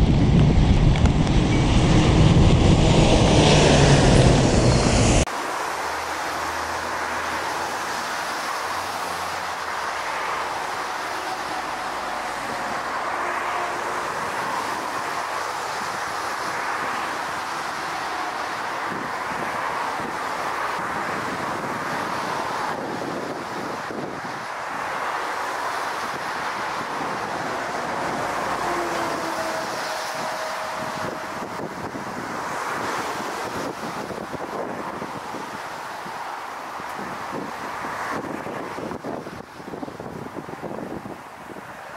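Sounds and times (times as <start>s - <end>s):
jet aircraft on approach: 0.0s - 41.2s
loud deep jet engines: 0.0s - 41.8s.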